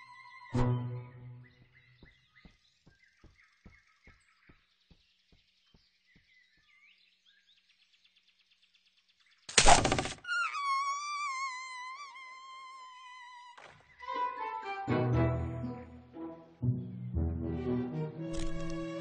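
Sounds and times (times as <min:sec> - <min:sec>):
faint birdsong: 0:00.0 - 0:14.4.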